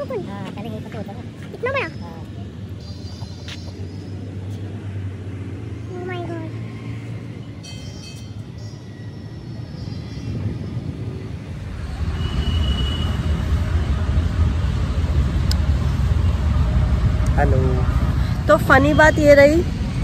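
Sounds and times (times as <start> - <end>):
low outdoor rumble: 10.4 - 20.0.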